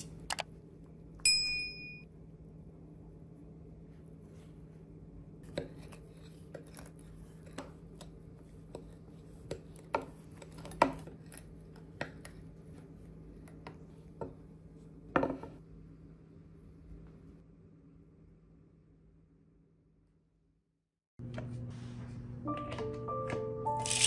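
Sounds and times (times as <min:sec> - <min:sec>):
utensils and dishware clinking: 0:23.8 - 0:24.0.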